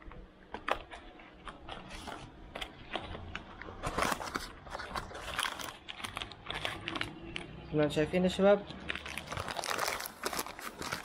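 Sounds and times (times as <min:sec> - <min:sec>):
packaging rustling: 0:00.5 - 0:07.6, 0:08.9 - 0:11.0.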